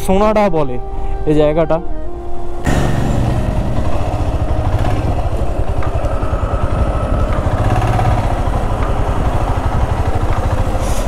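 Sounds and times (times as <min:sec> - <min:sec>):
motorcycle engine running: 0:02.7 - 0:11.0.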